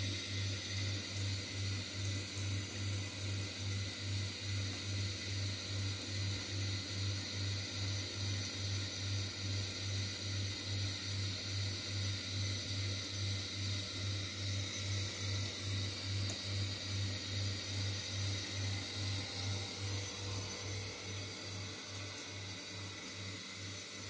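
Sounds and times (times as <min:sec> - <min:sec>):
tap water running into sink: 0:12.7 - 0:24.0.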